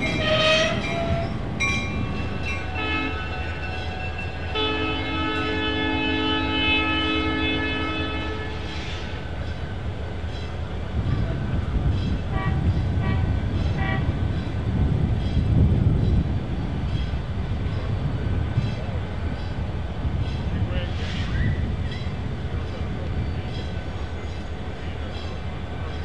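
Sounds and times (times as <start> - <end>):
locomotive air horn: 0.0 - 1.4, 2.6 - 9.1, 12.3 - 14.2
train rumble: 0.0 - 26.0.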